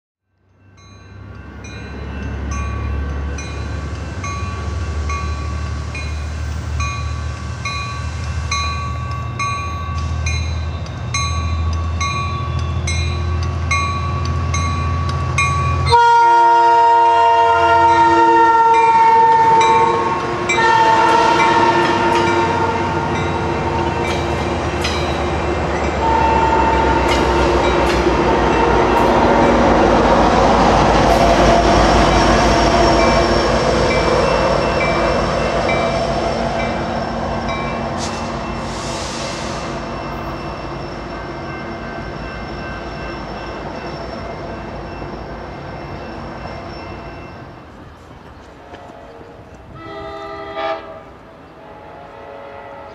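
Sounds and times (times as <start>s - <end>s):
train rumble: 0.7s - 52.9s
train horn blasts: 15.9s - 24.1s, 25.9s - 29.3s, 48.6s - 52.9s.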